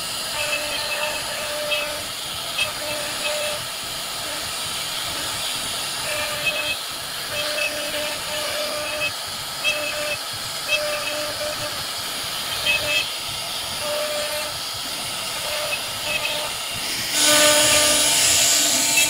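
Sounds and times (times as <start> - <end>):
router cutting wood with whine: 0.0 - 19.0.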